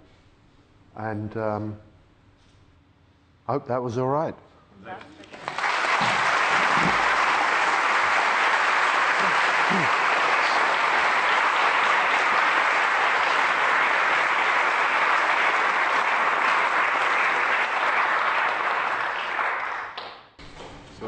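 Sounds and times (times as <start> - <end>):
audience applauding: 5.2 - 20.2.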